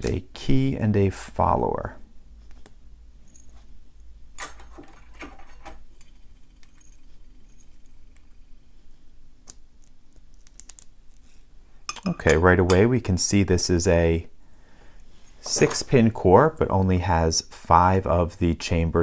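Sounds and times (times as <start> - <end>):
small metal clicks and clinks: 4.8 - 8.3.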